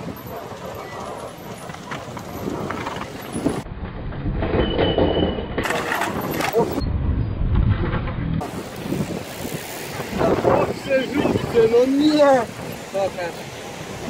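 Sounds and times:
bikes rattling down wooden stairs: 0.0 - 3.6, 4.4 - 6.8.

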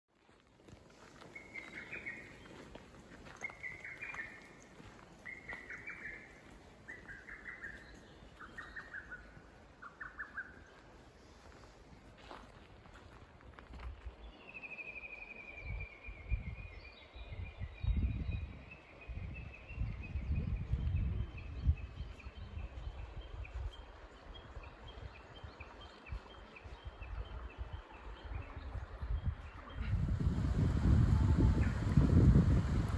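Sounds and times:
bird singing: 1.3 - 2.7, 3.3 - 4.6, 5.2 - 10.8
bush warbler calling: 5.3 - 10.7
low uneven rumble: 29.6 - 32.9.

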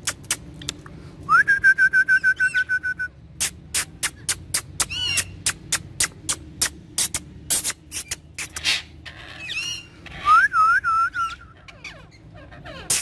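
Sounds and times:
parakeet whistling: 1.8 - 3.1, 9.4 - 12.0.

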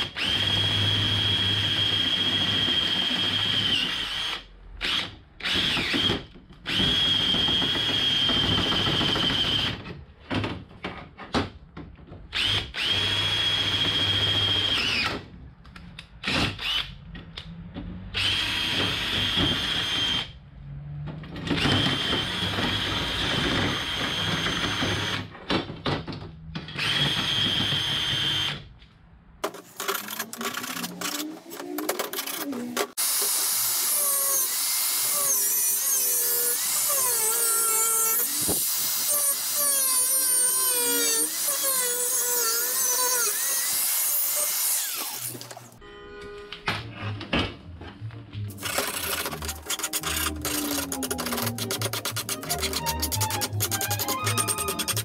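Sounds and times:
drill boring through metal: 0.0 - 6.1, 12.4 - 15.2, 18.2 - 20.3, 21.6 - 25.3, 26.8 - 28.6, 33.0 - 45.5, 48.5 - 55.0.

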